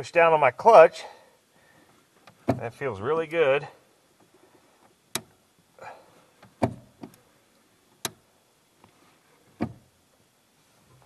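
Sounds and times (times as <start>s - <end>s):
soft rustle: 4.2s - 5.0s, 8.7s - 11.0s.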